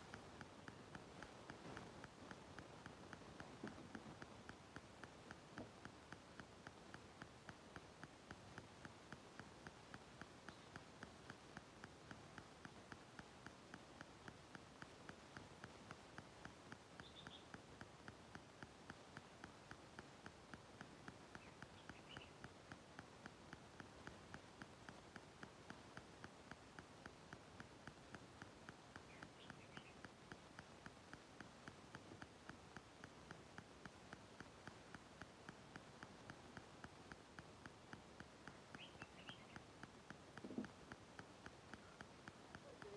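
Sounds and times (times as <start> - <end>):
faint even ticking: 0.0 - 42.9
faint high chirps: 17.0 - 17.6, 21.3 - 22.4, 29.0 - 30.1, 38.5 - 39.8, 42.6 - 42.9.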